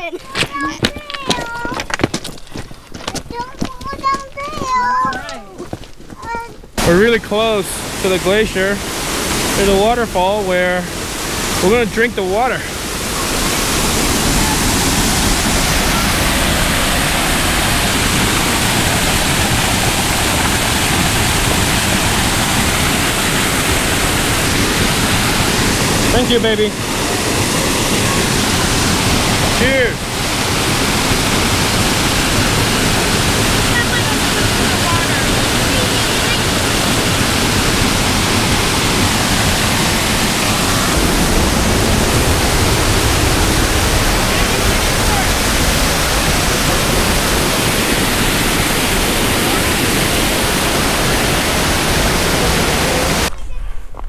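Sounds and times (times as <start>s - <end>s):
waterfall rushing over rocks: 6.8s - 53.3s.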